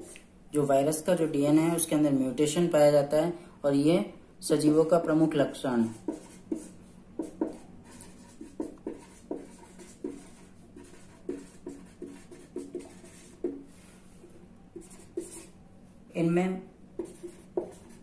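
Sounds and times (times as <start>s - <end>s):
marker writing on paper: 5.9s - 15.6s, 17.0s - 18.0s.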